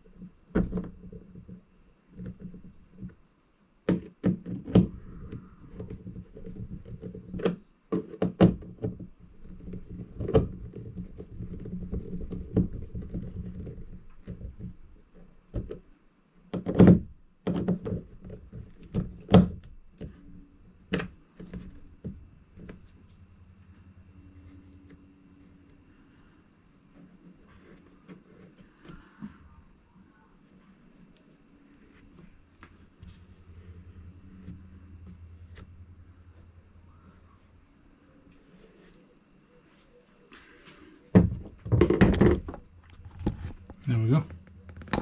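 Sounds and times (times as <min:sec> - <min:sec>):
low rubbing rumble: 0:21.8 - 0:26.9, 0:31.7 - 0:39.0.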